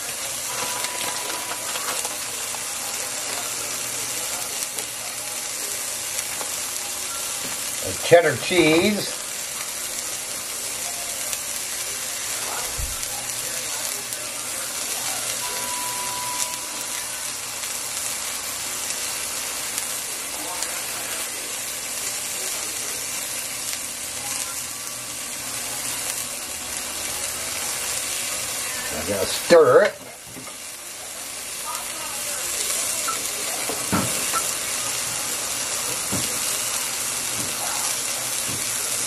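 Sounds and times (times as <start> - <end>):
soup simmering with sizzling hiss: 0.0 - 39.0.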